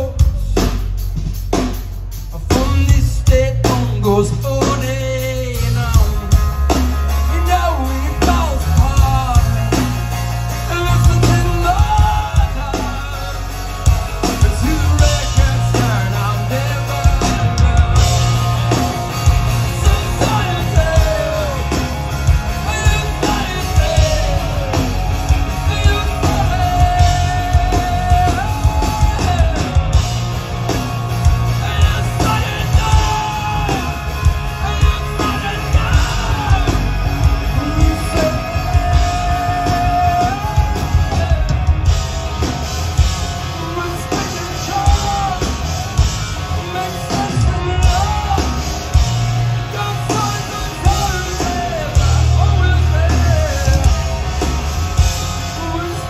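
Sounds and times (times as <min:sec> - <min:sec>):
live rock band through pa: 0:00.0 - 0:56.0
man singing long notes: 0:07.2 - 0:30.3, 0:31.3 - 0:42.0.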